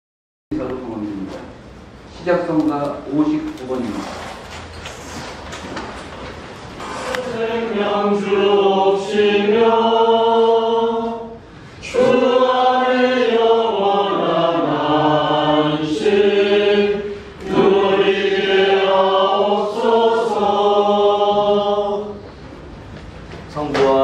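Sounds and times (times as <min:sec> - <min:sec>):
congregation singing a hymn: 0:06.8 - 0:22.6.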